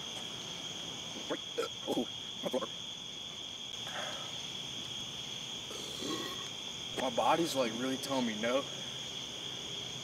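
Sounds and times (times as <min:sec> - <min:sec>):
night insects trilling: 0:00.0 - 0:10.0.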